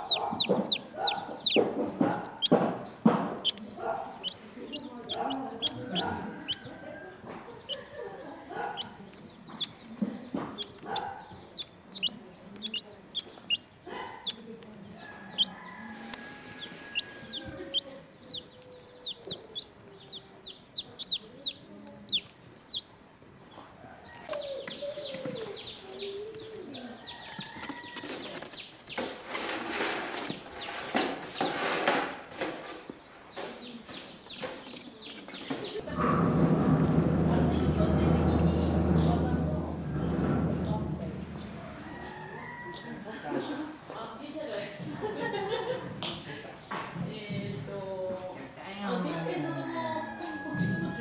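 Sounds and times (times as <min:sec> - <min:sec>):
adult chickens clucking: 0:00.0 - 0:36.2, 0:41.0 - 0:46.5, 0:48.3 - 0:51.0
chicks peeping: 0:00.0 - 0:46.3
scratchy rustling: 0:25.1 - 0:39.4.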